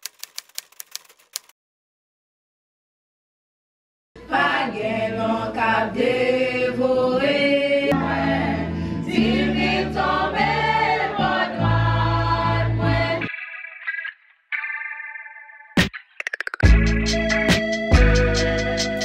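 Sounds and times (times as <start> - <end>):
group singing gospel song: 4.2 - 13.3.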